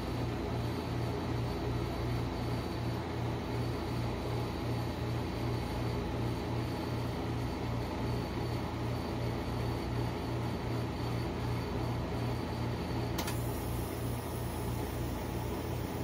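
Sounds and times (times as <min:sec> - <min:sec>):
refrigeration unit humming: 0:00.0 - 0:16.0
faint click: 0:13.2 - 0:13.4.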